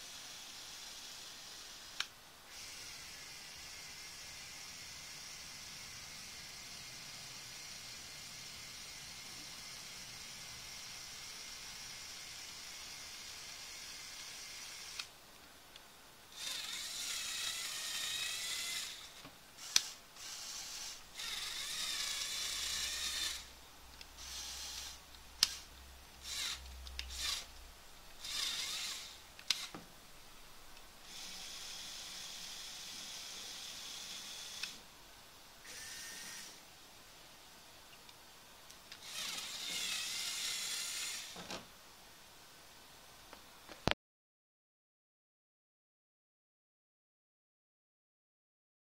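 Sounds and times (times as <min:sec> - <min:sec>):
small electric motors whining: 0:00.0 - 0:15.1, 0:16.3 - 0:23.5, 0:24.2 - 0:27.5, 0:28.2 - 0:29.8, 0:31.0 - 0:34.8, 0:35.6 - 0:36.6, 0:38.9 - 0:41.4.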